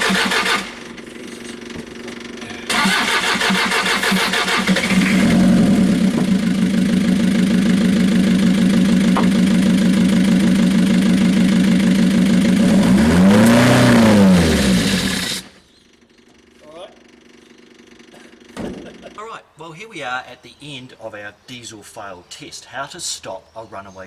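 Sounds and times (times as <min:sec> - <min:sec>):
diesel engine high drone: 0:00.0 - 0:19.2.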